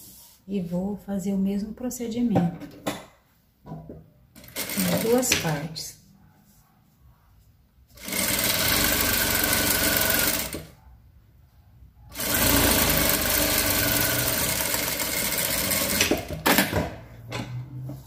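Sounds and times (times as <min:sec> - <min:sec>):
sewing machine running: 0:04.4 - 0:05.4, 0:08.0 - 0:10.7, 0:12.1 - 0:16.7.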